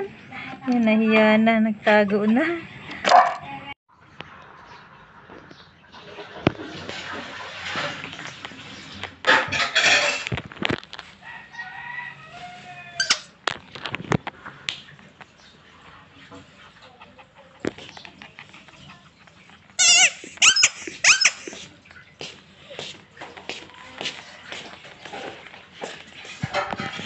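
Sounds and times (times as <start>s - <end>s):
rubber squeaky toy squeaking: 19.8s - 21.6s.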